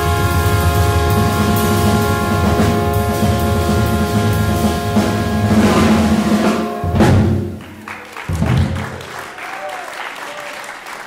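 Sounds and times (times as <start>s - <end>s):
jazz band holding final chord: 0.0s - 7.8s
drum roll on cymbals: 0.0s - 8.8s.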